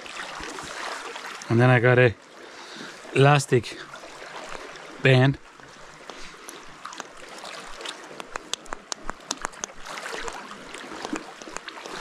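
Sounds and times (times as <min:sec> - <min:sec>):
small waves washing against rocks: 0:04.0 - 0:12.0
fishing tackle clicks: 0:06.0 - 0:07.2, 0:08.1 - 0:10.4, 0:11.0 - 0:12.0.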